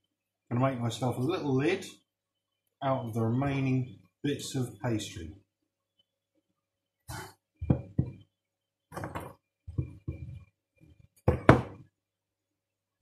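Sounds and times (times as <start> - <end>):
rolling pin knocking on wood: 7.6 - 8.2, 8.9 - 10.4, 11.2 - 11.9.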